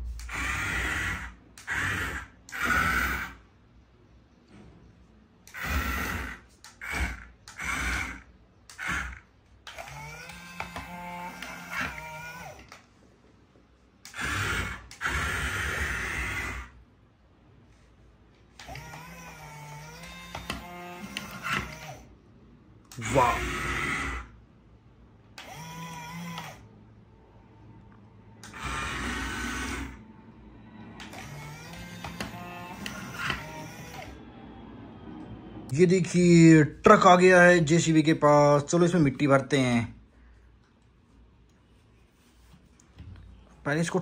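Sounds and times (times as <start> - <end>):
toy excavator motors whirring: 0.0 - 3.6, 5.4 - 12.9, 14.0 - 16.8, 18.5 - 22.1, 22.8 - 24.4, 25.3 - 26.8, 28.4 - 30.1, 31.0 - 34.3.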